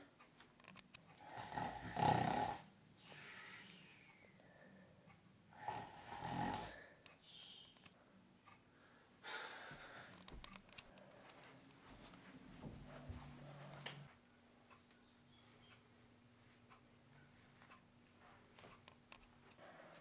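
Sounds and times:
person snoring: 1.2s - 3.6s, 5.5s - 6.8s.

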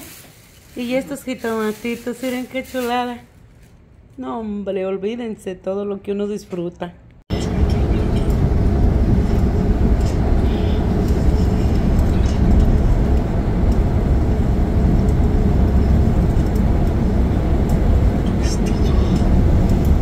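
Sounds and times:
bus engine and tyre rumble: 7.3s - 20.0s.

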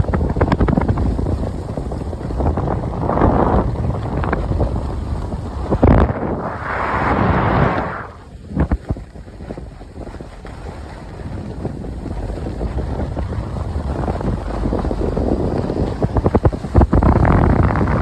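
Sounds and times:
wind buffeting microphone: 0.0s - 18.0s
skis hissing over snow: 5.2s - 8.3s.

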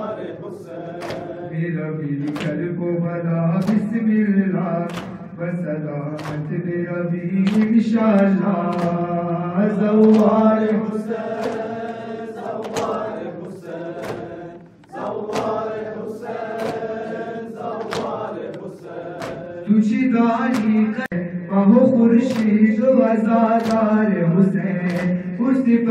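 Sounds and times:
men chanting a lament: 0.0s - 25.9s
hand slaps on the chest: 1.0s - 1.3s, 4.9s - 5.2s, 6.2s - 6.4s, 11.4s - 11.7s, 14.0s - 14.3s, 15.3s - 15.6s, 16.6s - 16.9s, 17.8s - 19.5s, 23.6s - 23.8s.

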